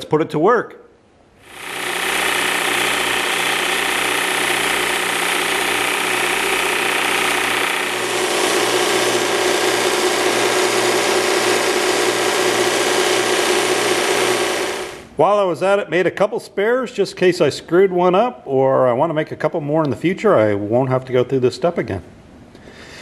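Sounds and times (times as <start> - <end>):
belt sander motor running: 1.4 - 15.1
board sanded against belt: 1.5 - 15.0.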